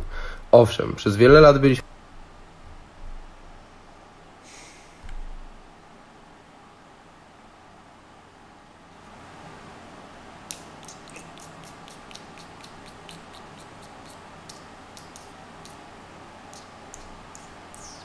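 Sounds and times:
faint room noise: 0:00.0 - 0:18.0
light sharp clicks: 0:10.5 - 0:15.8, 0:16.5 - 0:18.0.

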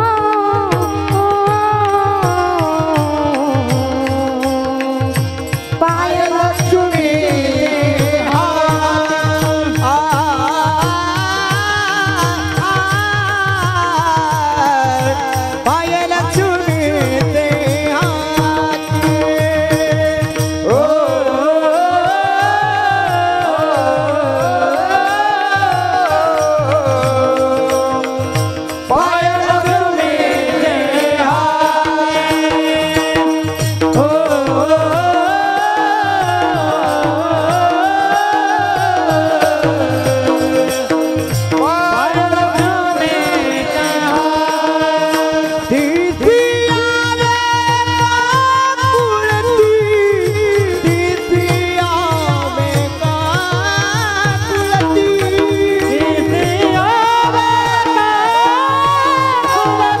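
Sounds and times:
hand cymbals: 0:00.0 - 1:00.0
men singing in unison: 0:00.0 - 1:00.0
men's chorus chanting: 0:20.7 - 0:28.2, 0:28.9 - 0:46.1.

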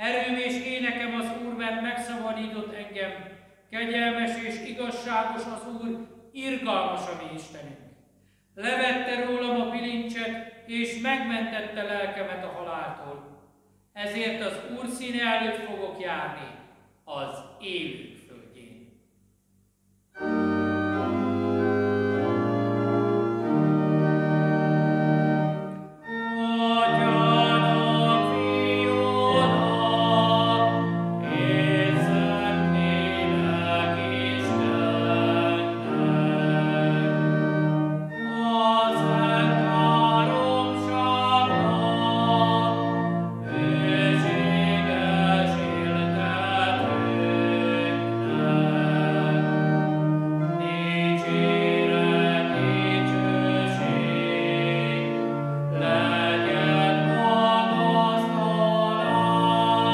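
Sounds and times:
church organ chords: 0:00.0 - 0:07.8, 0:08.6 - 0:13.2, 0:20.2 - 0:59.9
man singing a chant: 0:26.3 - 0:37.2, 0:38.2 - 0:42.8, 0:43.6 - 0:49.5, 0:50.6 - 0:55.0.

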